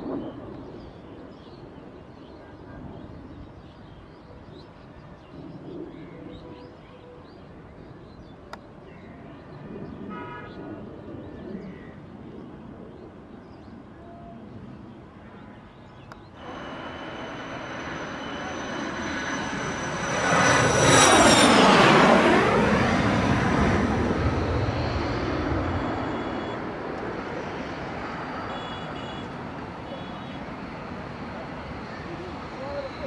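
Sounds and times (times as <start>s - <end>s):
distant jet roar: 16.2s - 33.0s.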